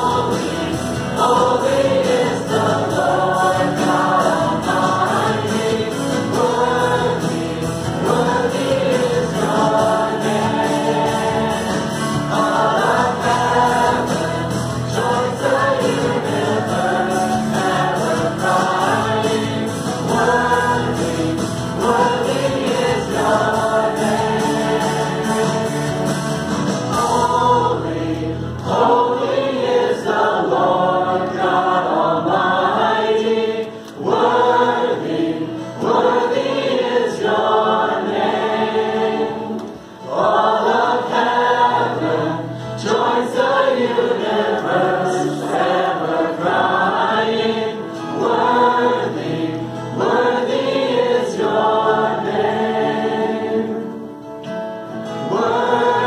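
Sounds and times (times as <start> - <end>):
bass guitar: 0.0 - 29.1
acoustic guitar: 0.0 - 56.0
congregation singing along: 0.0 - 56.0
singers: 0.0 - 56.0.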